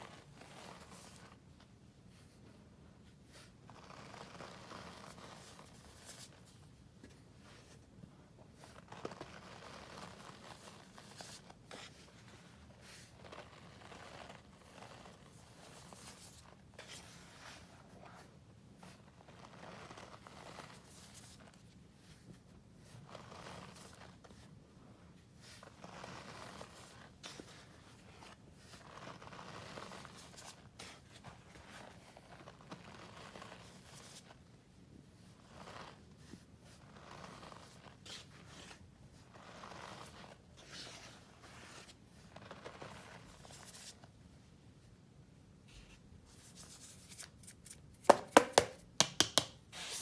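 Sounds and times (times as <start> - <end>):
powder crunching and rustling: 12.8 - 17.6, 35.4 - 43.9.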